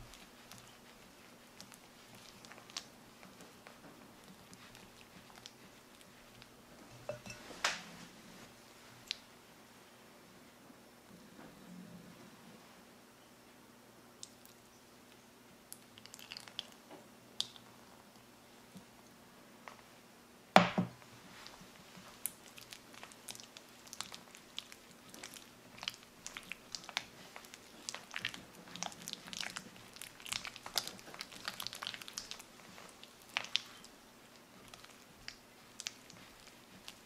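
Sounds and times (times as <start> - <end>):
spatula stirring sticky mixture: 0.0 - 9.2, 15.1 - 17.8, 21.1 - 37.0.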